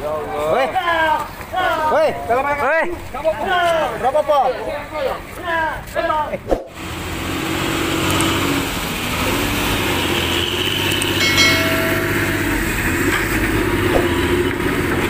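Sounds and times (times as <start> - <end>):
brief higher tone: 11.2 - 12.8.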